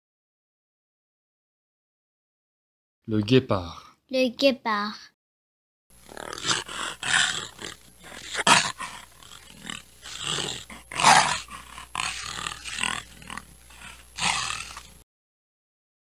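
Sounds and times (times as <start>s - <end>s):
cheetah growling: 6.0s - 15.0s.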